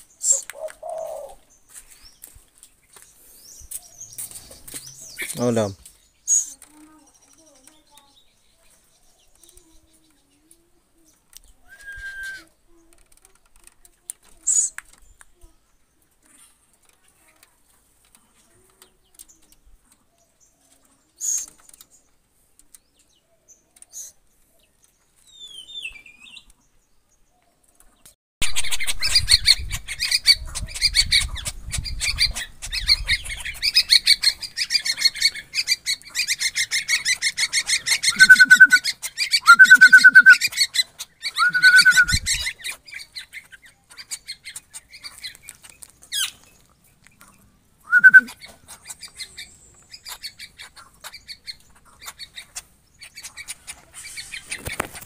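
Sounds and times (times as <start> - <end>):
loud drawn-out bird calls: 0.0 - 1.5, 28.4 - 43.4, 47.8 - 54.8
bird chirping rapidly: 28.4 - 42.5, 47.9 - 54.6.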